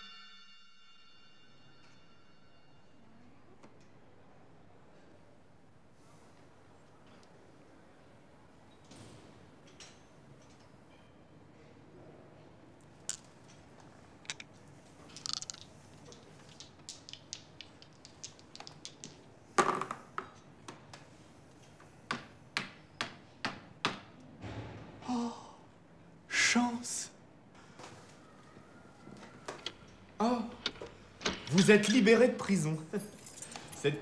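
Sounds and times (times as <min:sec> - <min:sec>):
sharp taps and clicks: 0:16.5 - 0:19.2.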